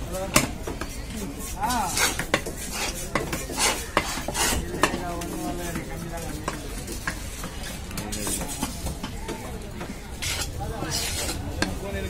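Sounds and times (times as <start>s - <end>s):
knife chopping on wooden block: 1.9s - 5.0s.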